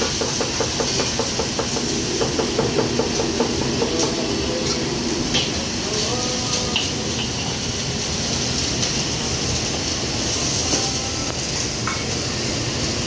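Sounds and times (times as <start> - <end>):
rapid rhythmic knocking: 0.1 - 4.5
short rising tone: 1.2 - 7.2.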